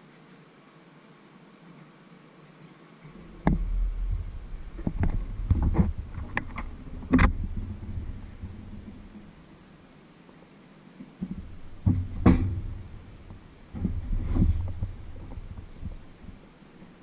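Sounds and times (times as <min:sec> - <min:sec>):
low rumbling: 0:03.1 - 0:10.0, 0:11.2 - 0:17.0
refrigerator door knocks and bumps: 0:11.2 - 0:16.1.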